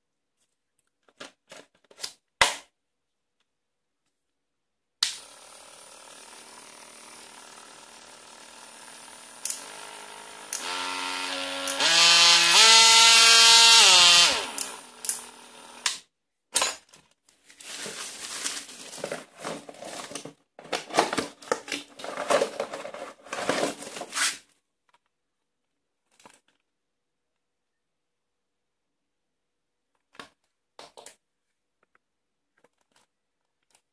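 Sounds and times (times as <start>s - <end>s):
oscillating multi-tool motor whine: 5.2s - 15.9s
rustling and handling noise: 16.6s - 27.5s, 29.8s - 33.9s.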